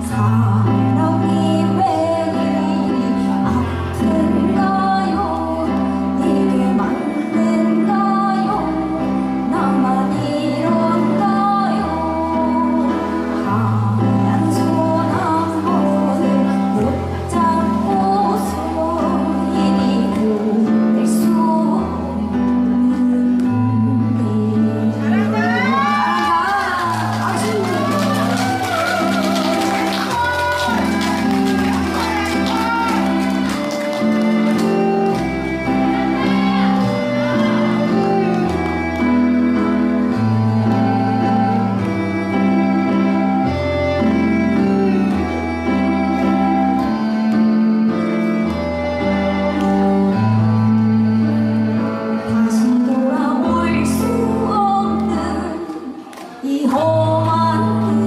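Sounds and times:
woman singing into a microphone: 0:00.0 - 0:31.0, 0:51.0 - 0:58.0
recorded backing music: 0:00.0 - 0:58.0.

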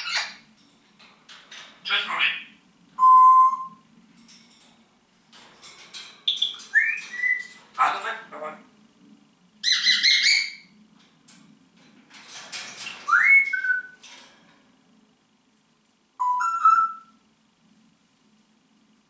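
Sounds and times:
parrot whistling and squawking: 0:00.0 - 0:00.4, 0:06.3 - 0:07.6, 0:09.6 - 0:10.7, 0:13.0 - 0:14.0, 0:16.2 - 0:17.2.

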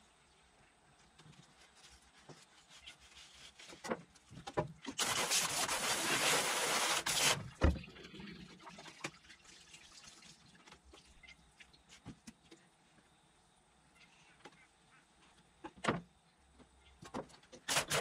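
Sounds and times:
hose nozzle spraying water on steel: 0:05.0 - 0:07.4.

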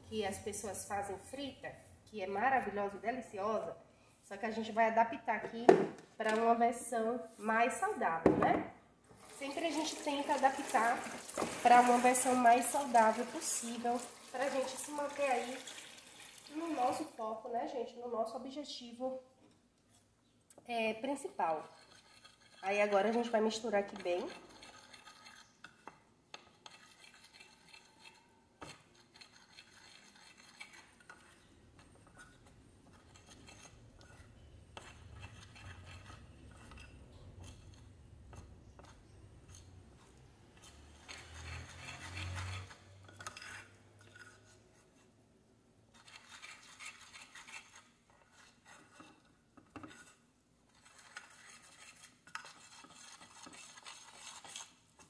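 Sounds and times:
metal spoon stirring in glass bowl: 0:21.4 - 0:44.6, 0:45.9 - 0:55.0.

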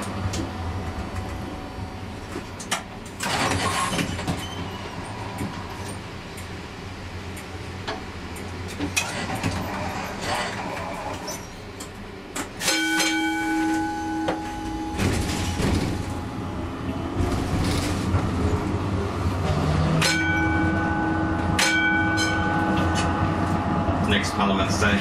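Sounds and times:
tram running rumble: 0:00.0 - 0:25.0
tram gong ringing: 0:12.6 - 0:25.0.

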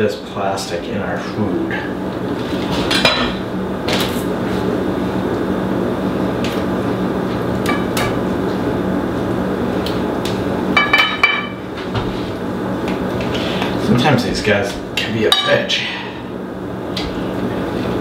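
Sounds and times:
steady hum and hiss: 0:00.0 - 0:18.0.

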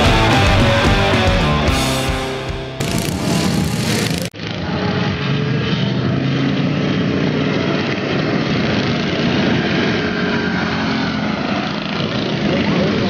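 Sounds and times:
ride-on lawn mower engines racing: 0:00.0 - 0:13.0.

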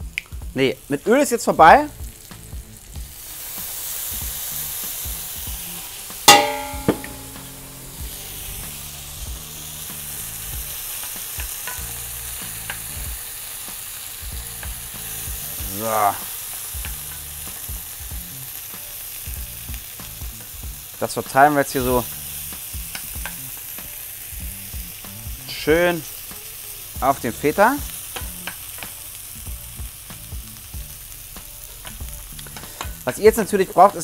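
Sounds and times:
mushrooms sizzling in frying pan: 0:00.0 - 0:34.0
loud ringing clank: 0:06.3 - 0:07.6.

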